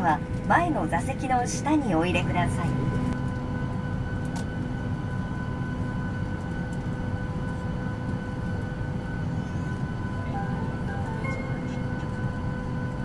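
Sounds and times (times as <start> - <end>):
aircraft cabin rumble and hum: 0.0 - 13.0
steady high tones: 10.1 - 12.9.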